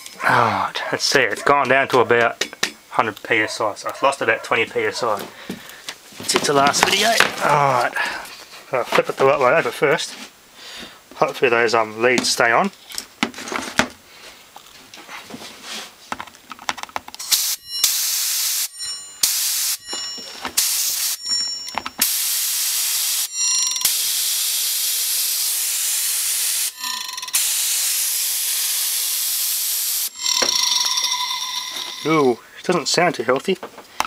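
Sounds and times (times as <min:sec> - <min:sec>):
compressed air blasts: 0:17.3 - 0:19.8, 0:20.6 - 0:21.2, 0:22.0 - 0:23.3, 0:23.9 - 0:30.2
hard drive whining and scraping: 0:30.1 - 0:32.6.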